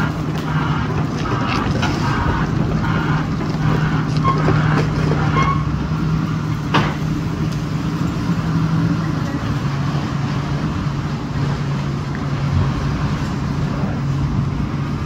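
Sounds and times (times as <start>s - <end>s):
excavator diesel engine running: 0.0s - 15.0s
debris clattering and scraping: 0.1s - 5.8s
short high squeals: 4.0s - 5.8s.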